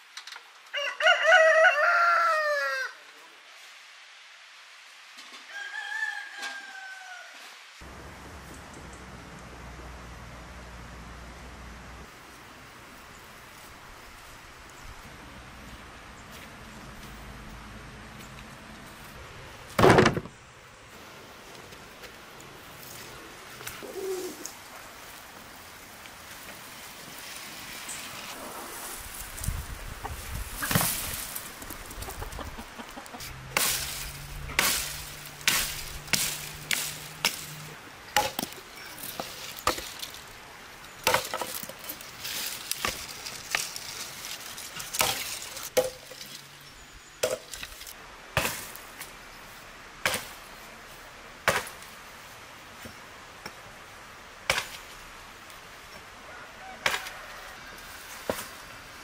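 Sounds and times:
branch dragged over ground: 20.9s - 49.2s
chickens clucking: 29.8s - 37.8s
hatchet chopping branches: 33.2s - 40.3s, 41.0s - 46.4s, 47.2s - 49.2s, 50.0s - 50.4s, 51.4s - 51.9s, 54.5s - 55.0s, 56.8s - 57.2s.

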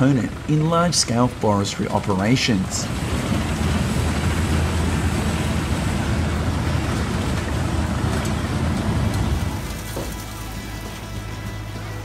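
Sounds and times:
low engine drone: 0.0s - 12.0s
wood chipper grinding: 2.8s - 12.0s.

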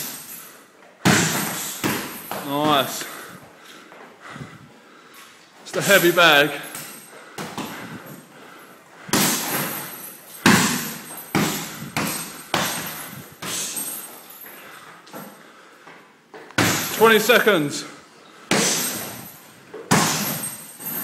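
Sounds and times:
gloved punches thudding on heavy bag: 1.0s - 2.8s, 9.1s - 14.0s, 16.6s - 17.0s, 18.5s - 19.3s, 19.9s - 21.0s.

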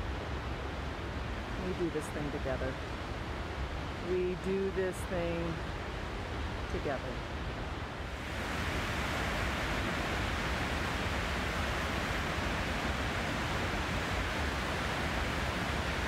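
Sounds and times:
waterfall rushing: 8.0s - 16.0s.

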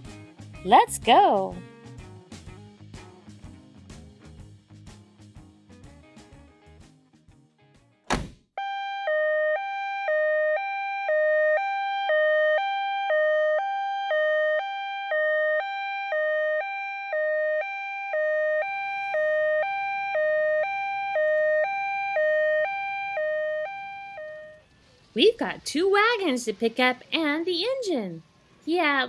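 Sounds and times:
sharp knock: 8.1s - 8.4s
toy two-tone siren: 8.6s - 24.6s.

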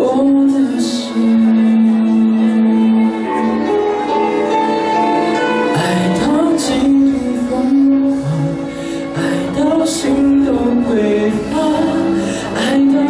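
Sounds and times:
man singing into a microphone: 0.0s - 4.4s, 5.6s - 13.0s
instrumental backing music: 0.0s - 13.0s.

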